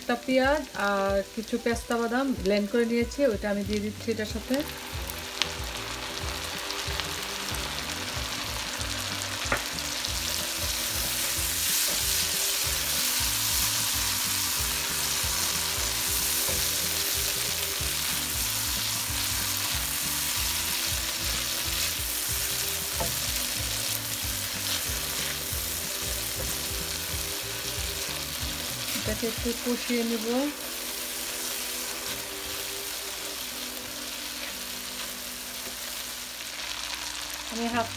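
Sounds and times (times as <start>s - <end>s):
paste sizzling in hot oil: 0.0s - 37.9s
spatula stirring in pan: 10.0s - 29.4s.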